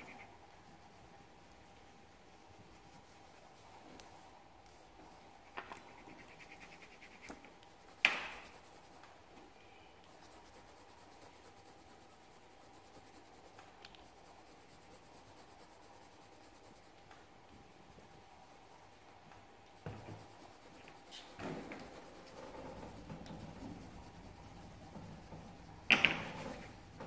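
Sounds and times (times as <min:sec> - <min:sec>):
pen scratching on paper: 0:00.0 - 0:04.2, 0:05.3 - 0:09.1, 0:10.0 - 0:17.0, 0:17.6 - 0:27.0
faint steady hum: 0:00.0 - 0:27.0
small ticks: 0:13.5 - 0:14.1.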